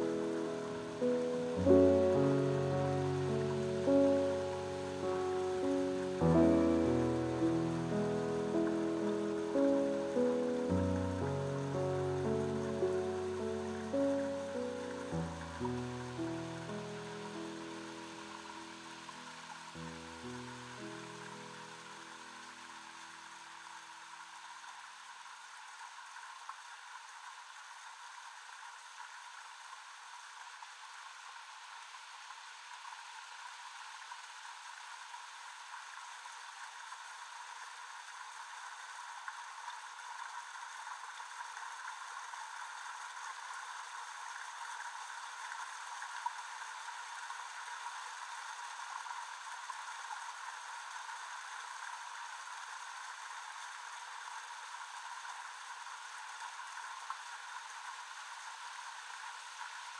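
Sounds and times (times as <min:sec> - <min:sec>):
faint steady tones: 0:00.0 - 0:23.6
filtered noise hiss: 0:00.0 - 0:59.9.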